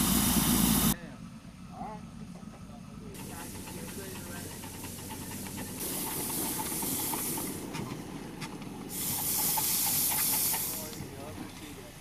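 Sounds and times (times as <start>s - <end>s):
steam hissing bursts: 0.0s - 1.0s, 3.2s - 7.8s, 8.9s - 11.0s
low steady rumble: 0.0s - 12.0s.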